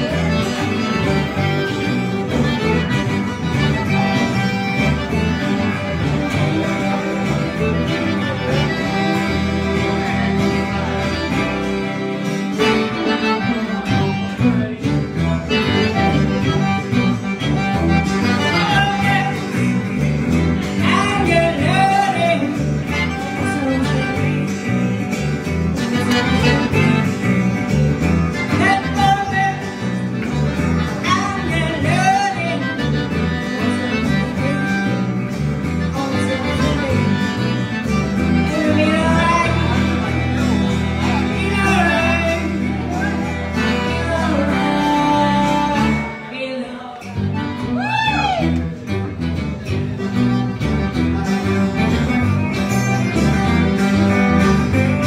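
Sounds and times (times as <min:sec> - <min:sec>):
electric bass beat: 0:00.0 - 0:46.1, 0:47.2 - 0:55.0
accordion: 0:00.0 - 0:55.0
fiddle: 0:00.0 - 0:55.0
guitars: 0:00.0 - 0:55.0.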